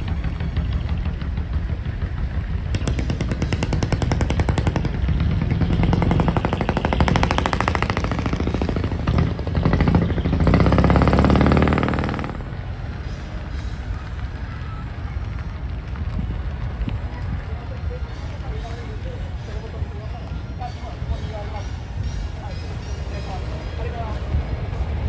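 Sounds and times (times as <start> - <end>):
van exhaust rattling: 0.0 - 17.4
low even rumble: 0.0 - 22.7.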